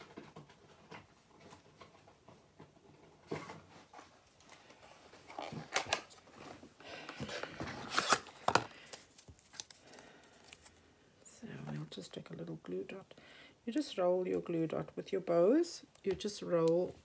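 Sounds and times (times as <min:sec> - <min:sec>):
rummaging through small boxes: 0:00.0 - 0:10.8.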